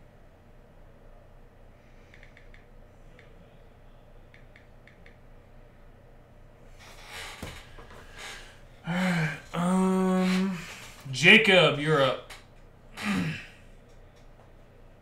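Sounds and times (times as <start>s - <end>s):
low room hum: 0.0s - 15.0s
faint clicks: 2.1s - 3.4s, 4.3s - 5.2s
hummed vocal sound: 8.8s - 10.8s, 13.0s - 13.6s.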